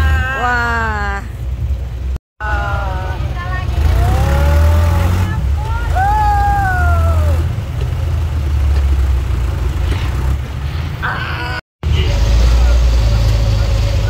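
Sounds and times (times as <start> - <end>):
person calling out: 0.0 - 1.3
engine rumbling: 0.0 - 14.0.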